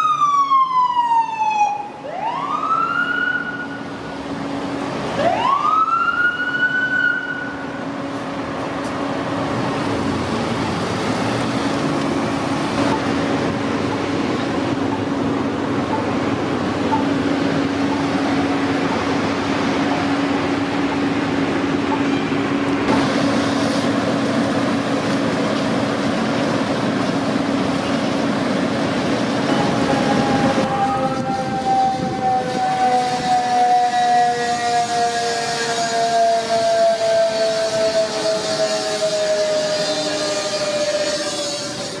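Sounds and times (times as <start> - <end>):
fire engine siren: 0.0 - 42.0
street traffic noise: 0.0 - 42.0
low engine drone: 7.3 - 39.8.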